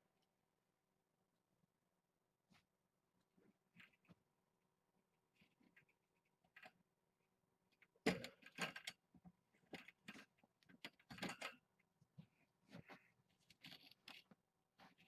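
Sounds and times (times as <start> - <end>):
handling knocks and scrapes: 7.9 - 15.0.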